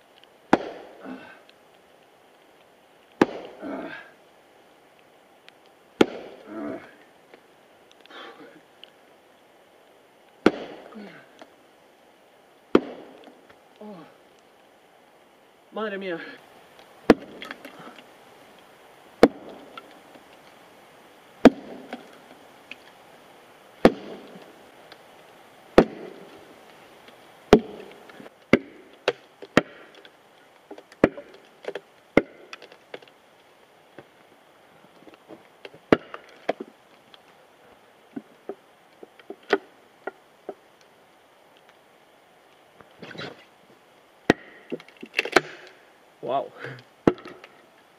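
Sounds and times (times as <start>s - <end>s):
log cracking as it splits: 0.0s - 11.6s, 12.5s - 14.8s, 16.7s - 20.6s, 21.4s - 23.0s, 23.8s - 41.8s, 42.4s - 45.9s, 46.6s - 47.9s
maul striking steel wedge: 0.5s - 0.9s, 3.2s - 3.6s, 6.0s - 6.4s, 10.4s - 10.8s, 19.2s - 19.6s, 23.8s - 24.4s, 25.8s - 26.2s, 27.5s - 27.9s.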